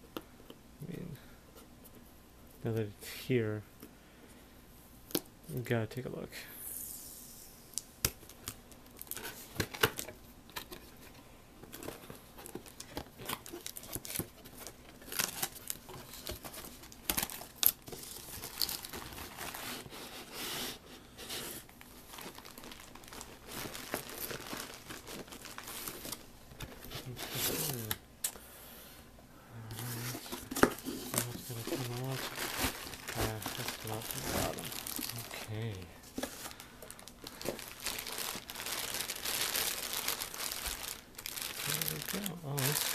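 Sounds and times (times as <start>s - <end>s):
cardboard packaging rustling: 8.4s - 28.0s, 29.7s - 42.9s.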